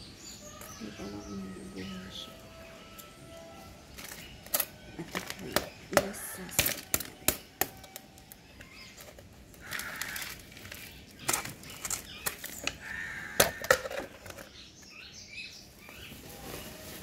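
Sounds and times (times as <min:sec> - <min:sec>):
plastic flower pots knocking: 0:04.0 - 0:14.5
crows cawing: 0:09.6 - 0:10.9, 0:12.6 - 0:14.3.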